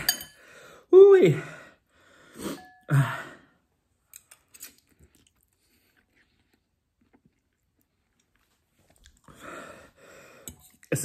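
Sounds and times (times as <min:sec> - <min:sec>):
chewing noodles: 0:04.2 - 0:09.4.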